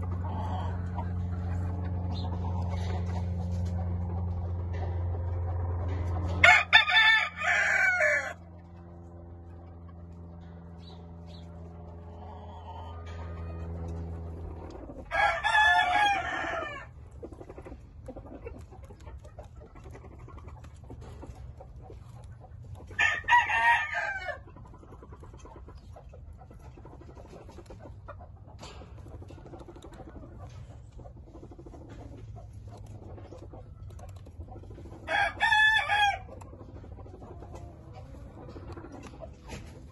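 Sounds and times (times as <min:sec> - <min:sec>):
low steady hum: 0:00.0 - 0:39.9
rooster crowing: 0:06.4 - 0:08.4, 0:15.1 - 0:16.9, 0:23.0 - 0:24.4, 0:35.1 - 0:36.3.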